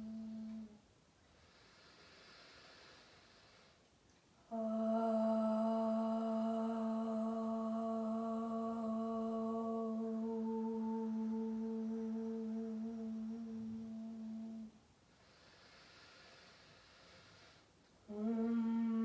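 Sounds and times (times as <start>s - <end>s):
woman humming: 0.0s - 0.8s, 4.4s - 14.8s, 18.0s - 19.0s
woman breathing in: 15.1s - 17.8s.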